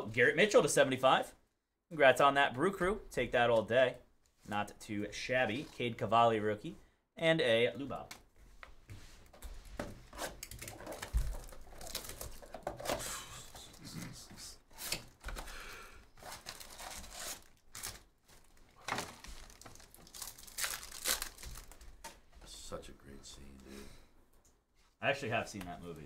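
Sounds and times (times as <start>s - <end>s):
plastic wrapping crinkling and tearing: 10.3s - 13.9s, 16.2s - 22.1s.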